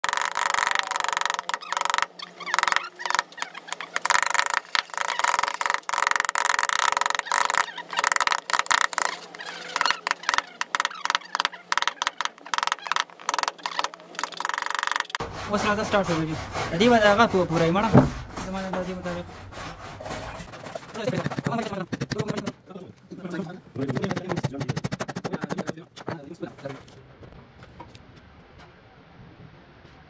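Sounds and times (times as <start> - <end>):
wood chips splitting: 0.0 - 19.5.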